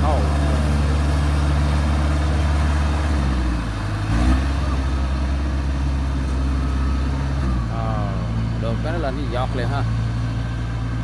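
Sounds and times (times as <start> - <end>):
harvester engine running: 0.0 - 11.0.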